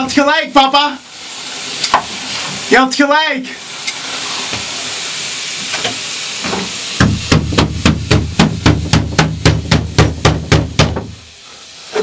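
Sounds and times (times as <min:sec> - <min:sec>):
steady hiss: 0:00.0 - 0:12.0
rapid regular knocking: 0:07.0 - 0:11.2.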